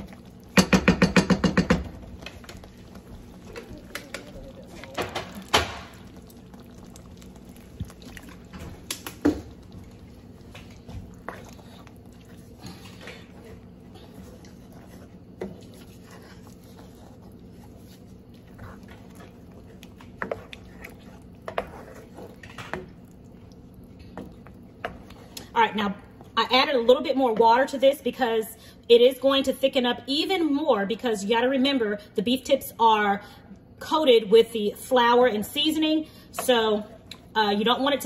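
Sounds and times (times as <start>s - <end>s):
gravy bubbling: 0.0s - 26.4s
wooden spoon knocking on pan: 0.6s - 2.0s.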